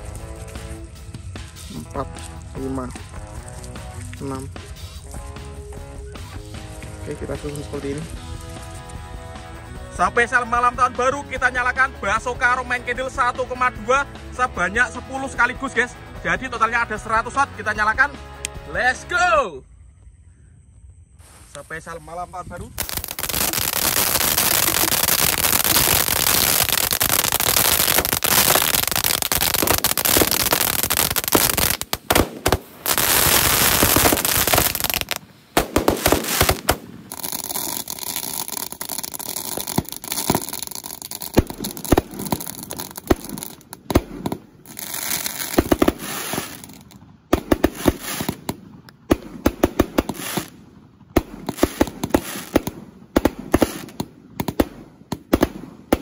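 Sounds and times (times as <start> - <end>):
fireworks spark spray hissing: 0.0 - 5.3, 21.2 - 21.8, 22.8 - 50.6, 51.2 - 56.0
fireworks popping and cracking: 0.0 - 10.8, 22.6 - 56.0.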